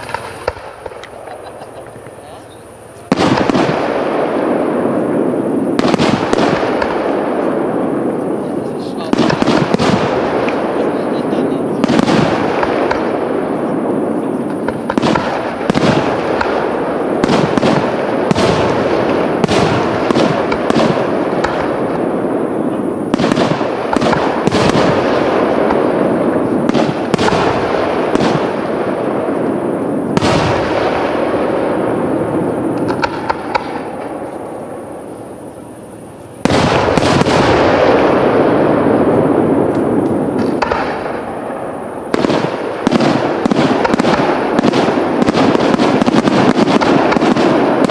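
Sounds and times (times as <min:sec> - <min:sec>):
continuous rumble: 0:00.0 - 0:47.9
firework shells bursting: 0:00.0 - 0:47.9.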